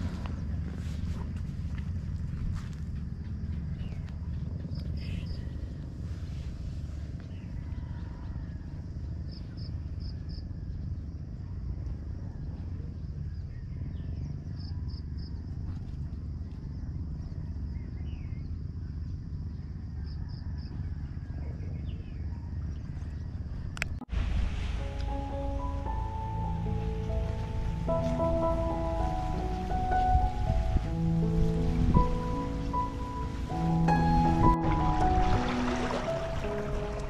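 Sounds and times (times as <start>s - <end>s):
wind buffeting microphone: 0.0s - 9.0s, 21.4s - 37.0s.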